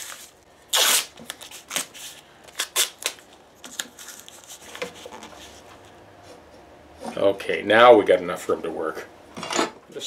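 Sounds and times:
masking tape pulled off roll: 0:00.0 - 0:04.5.

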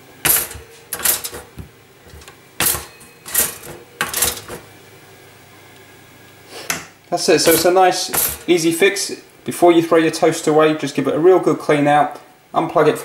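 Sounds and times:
toaster carriages clacking: 0:00.2 - 0:04.6, 0:07.5 - 0:08.6.

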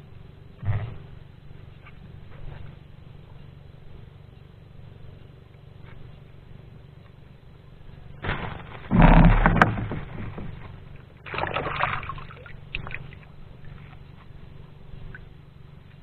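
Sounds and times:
faint low rumble: 0:00.0 - 0:16.0
stone rustling and knocking: 0:08.3 - 0:10.8.

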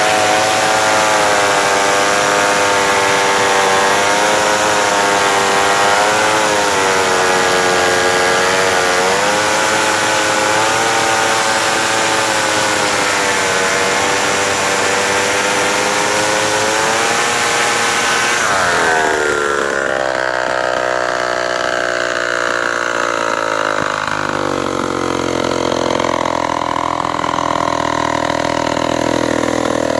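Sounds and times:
chain cutting through log: 0:00.0 - 0:29.9
chainsaw engine running: 0:00.0 - 0:29.9.

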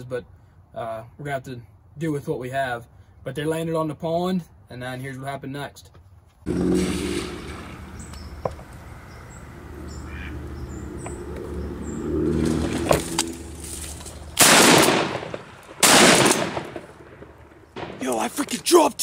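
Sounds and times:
shotgun shots: 0:14.4 - 0:18.4.

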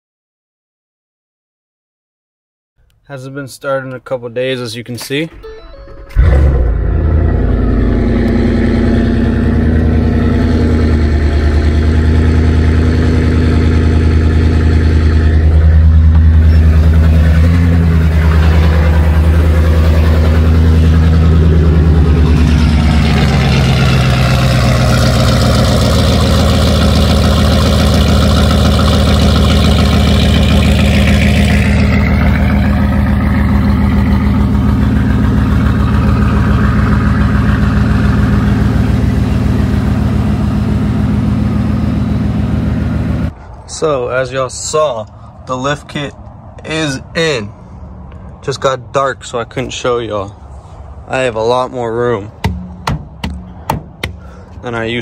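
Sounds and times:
pickup engine starting and idling: 0:04.8 - 0:43.6.

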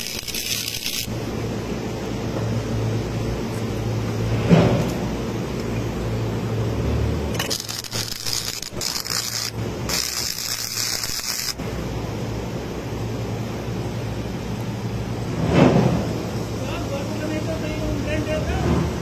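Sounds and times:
arc welding crackle: 0:00.0 - 0:01.4, 0:06.8 - 0:11.8
steady low hum: 0:00.0 - 0:19.0.

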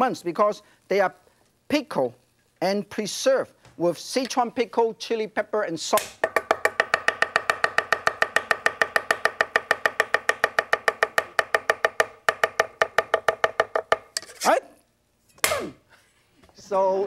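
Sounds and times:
cleaver chopping on wooden board: 0:06.0 - 0:14.1.

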